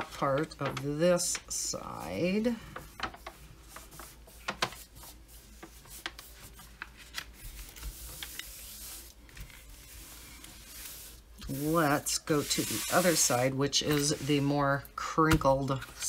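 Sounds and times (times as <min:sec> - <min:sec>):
plastic sheet rustling: 0:02.9 - 0:14.5.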